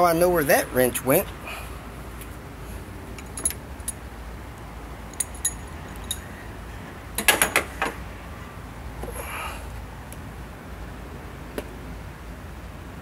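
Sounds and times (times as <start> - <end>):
metal tools clinking and rattling: 3.2 - 4.0, 5.1 - 6.3.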